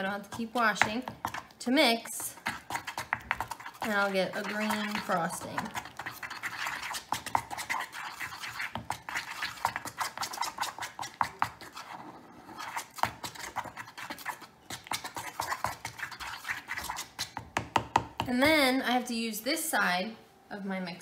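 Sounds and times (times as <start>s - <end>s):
metal tool scraping muffin tin: 2.2s - 14.4s.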